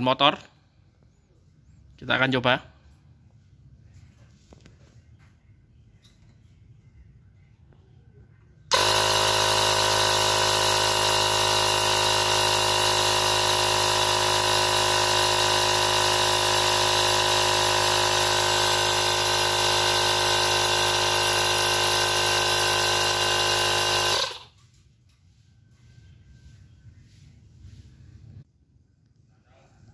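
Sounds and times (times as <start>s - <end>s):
tyre inflator running: 8.7s - 24.6s.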